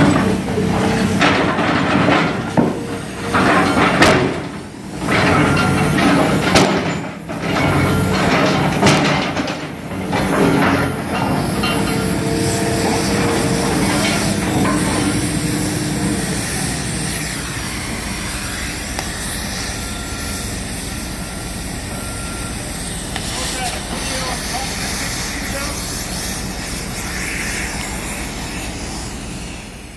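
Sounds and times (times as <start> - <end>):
excavator engine running: 0.0 - 29.9
cutting torch hissing: 10.3 - 29.9.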